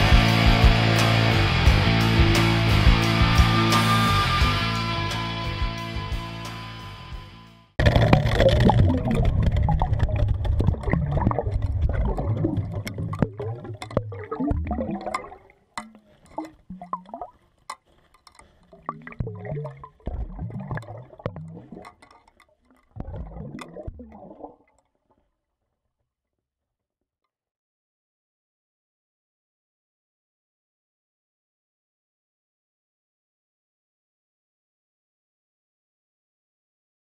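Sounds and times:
water gurgling underwater: 7.8 - 17.4, 18.5 - 24.8
sharp clicks and knocks: 12.7 - 14.2, 15.1 - 16.7, 17.6 - 18.6, 21.6 - 23.7.

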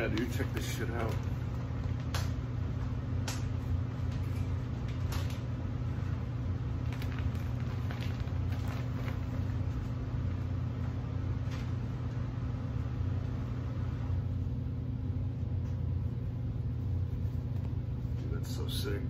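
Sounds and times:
low machine hum: 0.0 - 19.0
plastic packaging rustling: 4.0 - 10.1.

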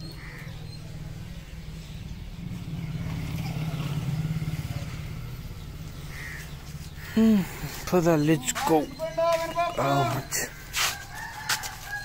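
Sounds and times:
crow cawing: 0.1 - 0.6, 6.0 - 7.2
vehicle engine running: 0.2 - 9.0.

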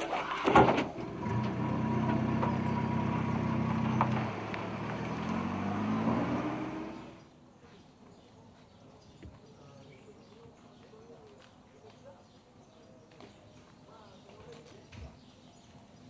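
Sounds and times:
vehicle engine running: 0.9 - 7.3.

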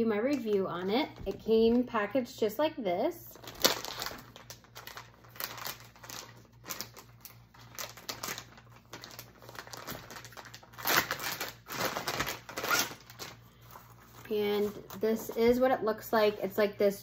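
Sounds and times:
plastic bag crinkling: 3.3 - 16.5.

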